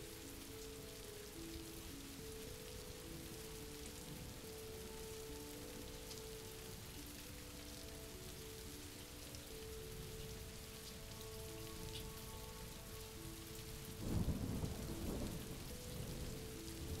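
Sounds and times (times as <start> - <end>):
faint held musical notes: 0.0 - 17.0
steady rain: 0.0 - 17.0
thunder rumbling: 14.0 - 17.0.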